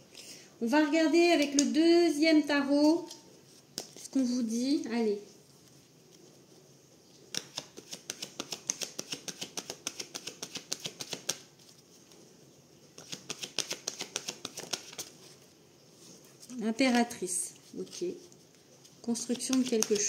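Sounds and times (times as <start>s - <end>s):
cards being shuffled: 3.0s - 4.3s, 7.2s - 12.2s, 13.0s - 15.4s, 16.4s - 20.0s.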